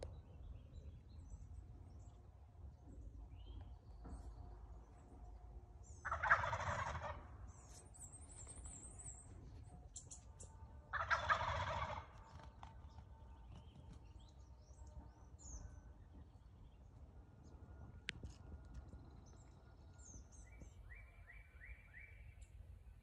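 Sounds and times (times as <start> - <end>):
songbird chirps: 0.0 - 23.0
turkeys gobbling: 6.0 - 7.3, 10.9 - 12.3.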